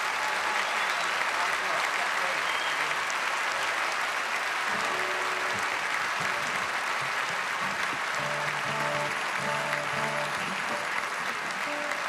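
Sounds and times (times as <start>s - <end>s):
audience applauding: 0.0s - 12.0s
instrument notes: 4.7s - 7.0s, 8.1s - 12.0s.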